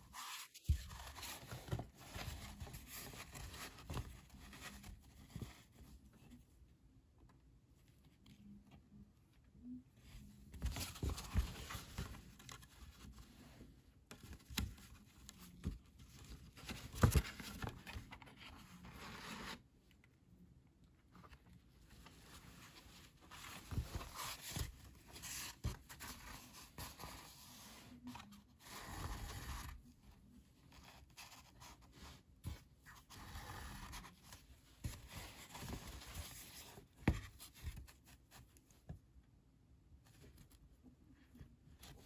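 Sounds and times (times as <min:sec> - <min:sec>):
paper rustling: 0:10.5 - 0:19.6.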